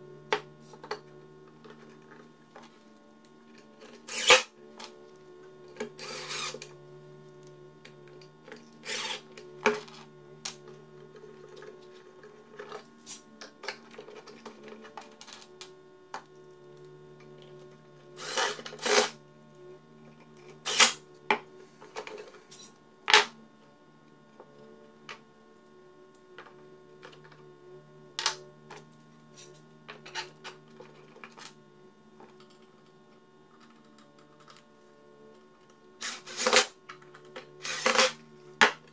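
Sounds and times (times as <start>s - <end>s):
faint steady hum: 0.0s - 38.9s
cordless drill driving screws: 4.1s - 4.4s, 8.8s - 9.2s.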